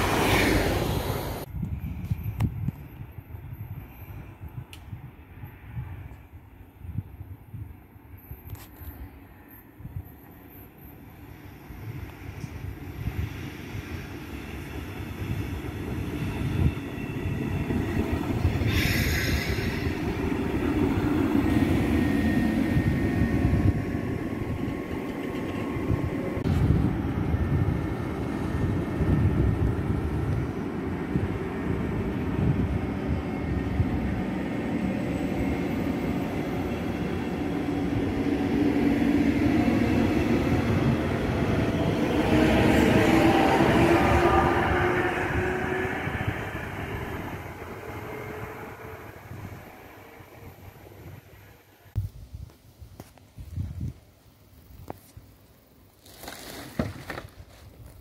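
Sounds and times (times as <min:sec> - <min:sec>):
electric locomotive whine: 0:00.0 - 0:52.0
train wheels rumbling on rails: 0:08.6 - 0:51.3.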